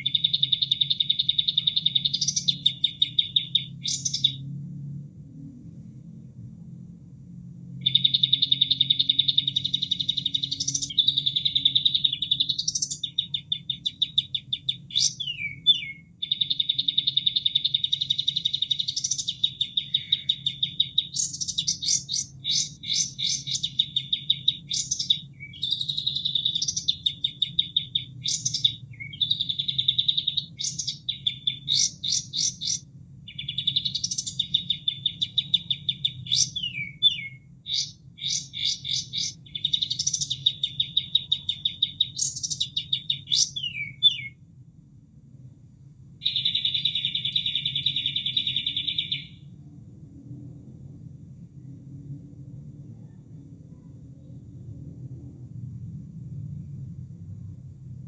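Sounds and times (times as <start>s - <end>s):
bird singing rattling trills: 0.0s - 4.4s, 7.8s - 44.4s, 46.2s - 49.5s.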